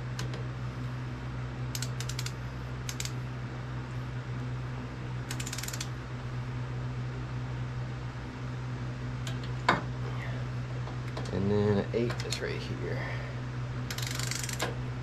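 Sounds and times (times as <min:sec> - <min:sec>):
steady low hum: 0:00.0 - 0:15.0
torque wrench ratchet clicking: 0:01.7 - 0:03.2, 0:05.3 - 0:05.9, 0:13.9 - 0:14.7.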